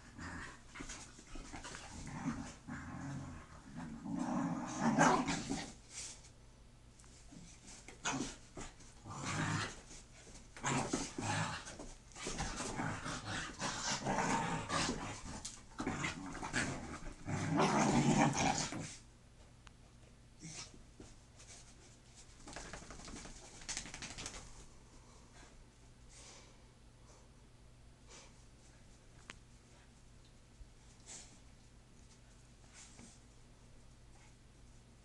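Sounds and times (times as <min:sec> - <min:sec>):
dogs growling: 0:01.6 - 0:05.7, 0:12.4 - 0:19.0.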